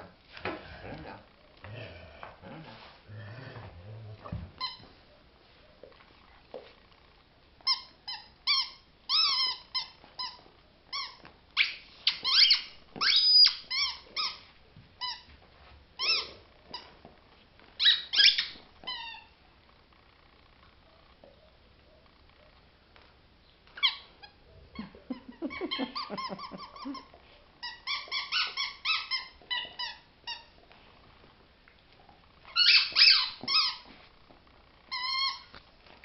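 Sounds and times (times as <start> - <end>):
dog chewing squeaky ball: 4.5 - 5.0, 7.6 - 15.4, 16.0 - 17.1, 17.8 - 19.5, 23.8 - 30.7, 32.4 - 35.6.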